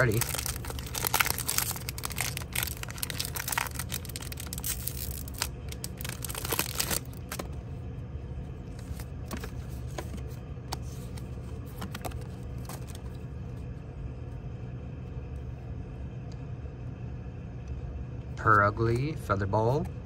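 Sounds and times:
foil wrapper crinkling and tearing: 0.0s - 7.5s
low steady hum: 0.0s - 20.0s.

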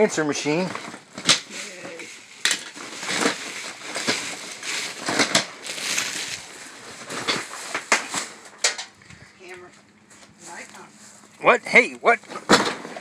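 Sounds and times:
rustling in cardboard box: 0.7s - 8.4s
knocks in box: 12.4s - 13.0s.

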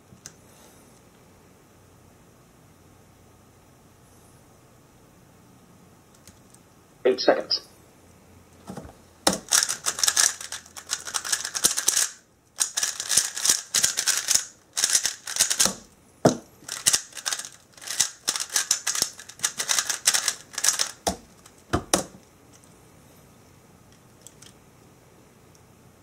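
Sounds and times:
speed cube clacking: 9.2s - 22.2s.

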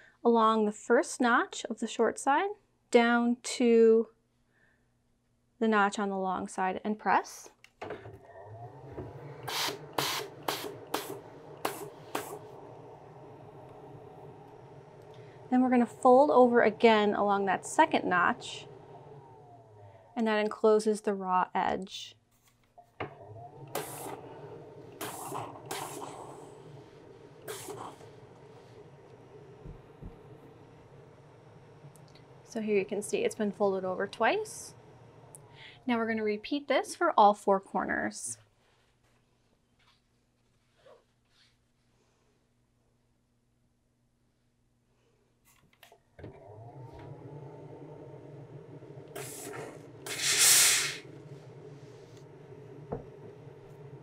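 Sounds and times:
low hum: 8.2s - 20.5s, 22.9s - 36.4s, 50.8s - 54.0s
steam iron hissing bursts: 8.7s - 20.2s, 23.5s - 35.9s, 49.0s - 54.0s.

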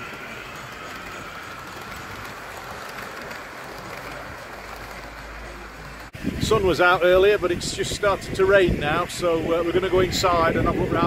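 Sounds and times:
rain on fabric roof: 0.0s - 6.2s.

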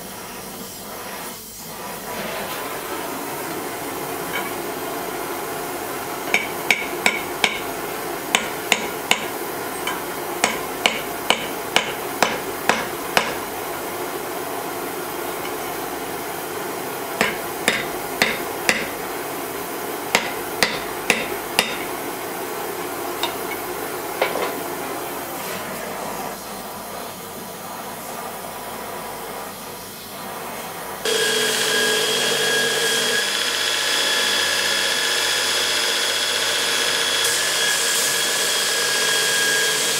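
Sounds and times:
hammer striking steel on anvil: 6.3s - 13.4s, 17.2s - 19.0s, 20.1s - 22.0s, 23.2s - 23.6s.

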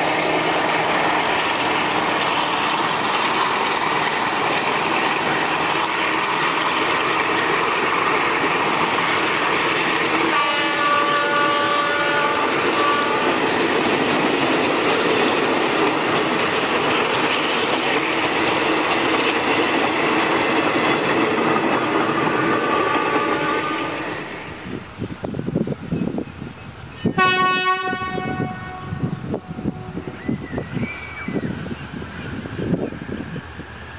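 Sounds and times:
train wheels rumbling on rails: 0.0s - 33.9s.

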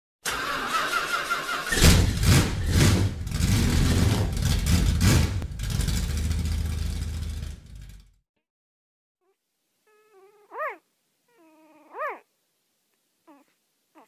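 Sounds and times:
loud rumbling: 1.7s - 8.2s.

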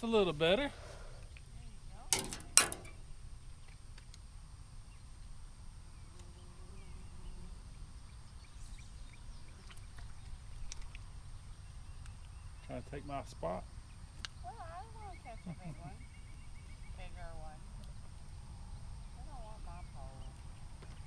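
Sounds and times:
faint chirps and ticks: 1.1s - 2.0s, 5.9s - 21.0s.

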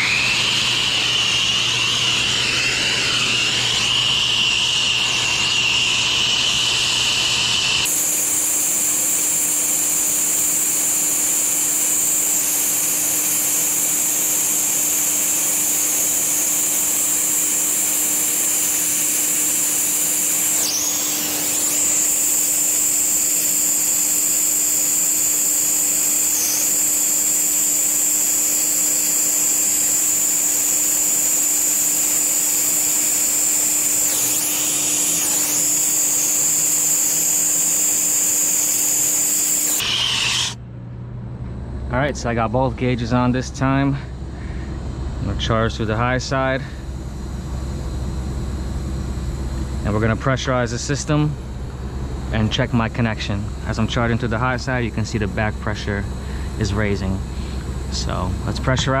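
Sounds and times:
steady low hum: 0.0s - 39.9s, 40.5s - 59.0s
torch hissing: 0.0s - 40.6s.

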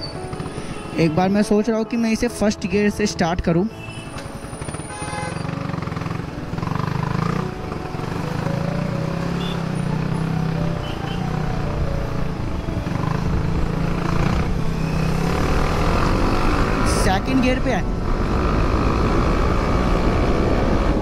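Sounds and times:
motorcycle engine running: 4.4s - 17.0s.

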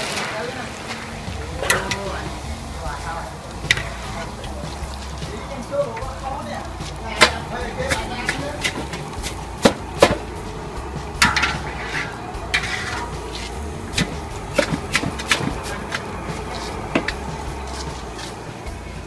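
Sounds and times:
strainer knocking metal bowl: 6.8s - 18.4s
rustle of noodle strands: 15.3s - 19.0s.

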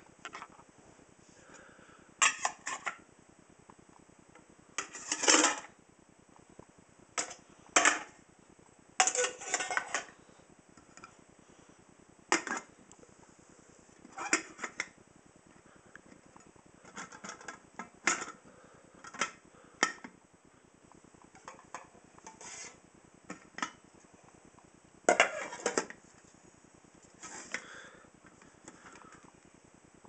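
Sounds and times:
metal camping pots clinking: 9.0s - 10.1s, 25.1s - 25.9s.

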